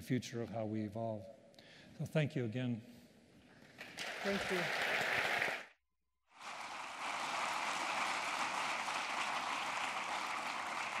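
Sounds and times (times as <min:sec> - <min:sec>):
audience applauding: 0:03.8 - 0:05.8, 0:06.4 - 0:11.0.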